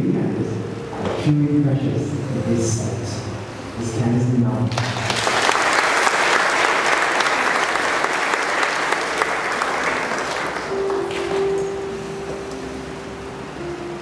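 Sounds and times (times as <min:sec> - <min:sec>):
audience applauding: 0:04.7 - 0:11.6
steady tone: 0:09.0 - 0:14.0.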